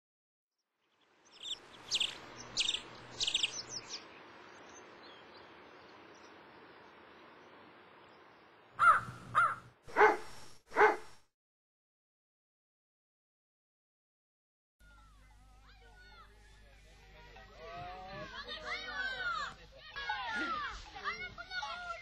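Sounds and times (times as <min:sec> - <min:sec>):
small bird chirping: 0:00.9 - 0:09.6
crow cawing: 0:08.8 - 0:10.3.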